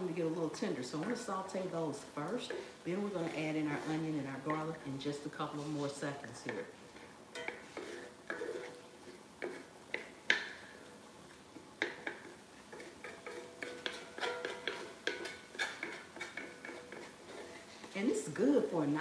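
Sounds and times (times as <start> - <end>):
wooden spatula scraping a skillet: 0.0 - 19.0
spatula knocking against pan: 9.4 - 10.7, 11.8 - 17.1.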